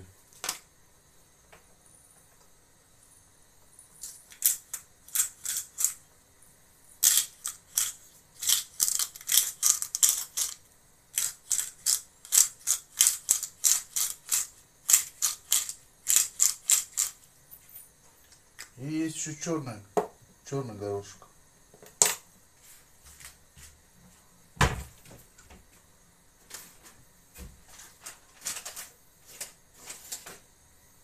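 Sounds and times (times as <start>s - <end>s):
pepper mill grinding: 4.0s - 6.1s, 6.9s - 17.3s.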